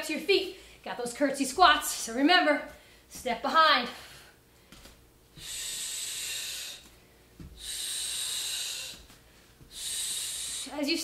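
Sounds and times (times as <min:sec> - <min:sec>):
woman breathing hard: 0:03.9 - 0:10.7.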